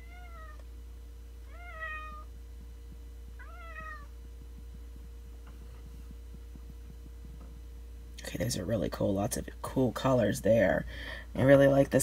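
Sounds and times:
cat meowing: 0.0s - 0.6s, 1.5s - 2.3s, 3.4s - 4.1s
steady low hum: 0.0s - 12.0s.

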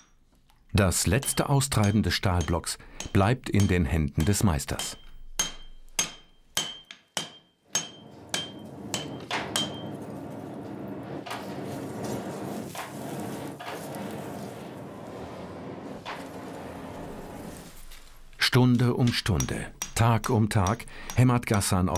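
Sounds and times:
hammer ringing on anvil: 1.2s - 10.0s, 19.0s - 21.7s
forge fire rushing: 8.2s - 18.4s.

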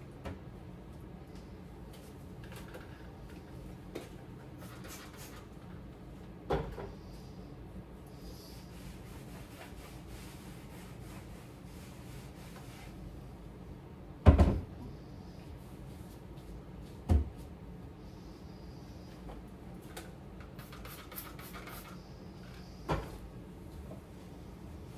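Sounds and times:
cabinet doors knocking shut: 14.2s - 14.7s.

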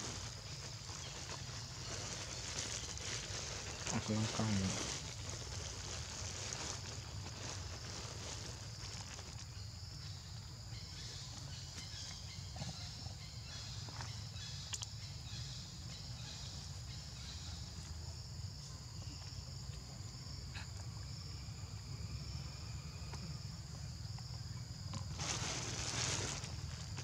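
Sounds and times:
insects buzzing: 0.0s - 27.0s.

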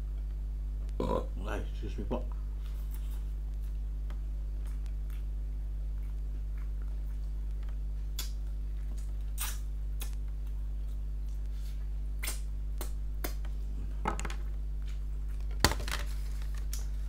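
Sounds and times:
steady low hum: 0.0s - 17.0s
wet chewing and lip smacks: 4.6s - 5.3s, 5.9s - 11.5s.

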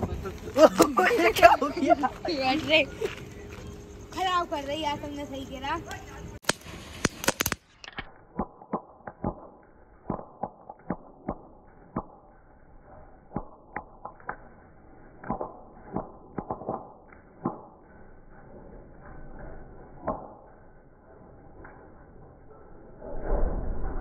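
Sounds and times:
firecrackers popping and crackling: 6.4s - 17.9s.

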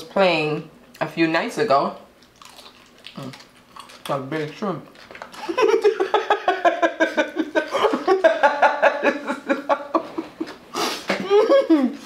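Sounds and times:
woman laughing hard: 5.4s - 12.0s.

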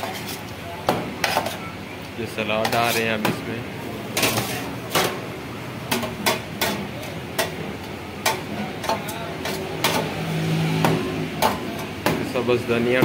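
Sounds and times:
spatula and knife clacking on metal: 0.0s - 1.6s, 2.6s - 3.4s, 4.1s - 5.2s, 5.9s - 10.2s, 10.8s - 12.4s.

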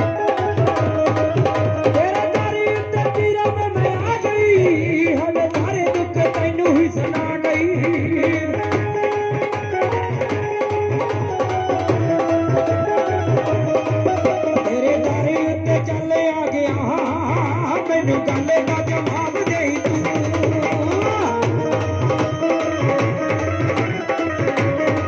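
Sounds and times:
dholak and dhol drumming: 0.0s - 25.0s
gliding keyboard melody: 8.8s - 15.9s.

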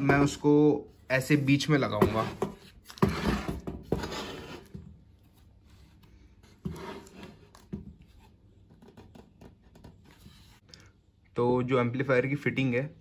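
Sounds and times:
amplifier scraping on wood: 1.2s - 4.8s.

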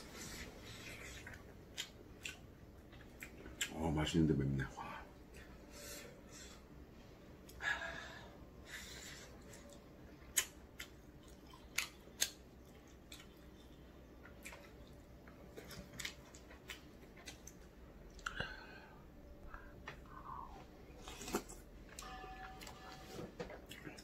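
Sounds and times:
mouth chewing: 0.2s - 3.8s.

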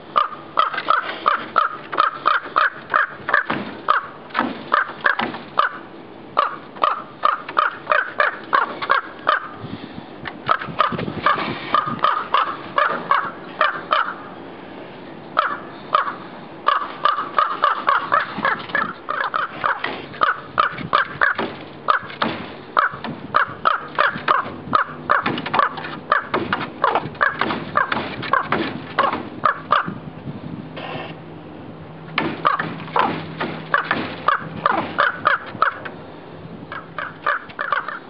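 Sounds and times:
raven calling: 0.0s - 9.7s, 10.4s - 30.0s, 32.2s - 36.1s, 36.7s - 38.0s.

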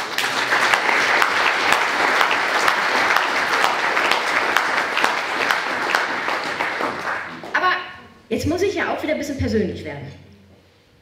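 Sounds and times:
audience applause: 0.0s - 7.6s.

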